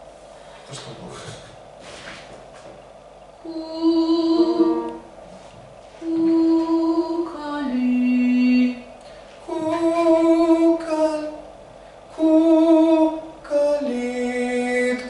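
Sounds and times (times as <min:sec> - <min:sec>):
person singing with vibrato: 0:03.4 - 0:05.2, 0:06.0 - 0:11.5, 0:12.1 - 0:15.0.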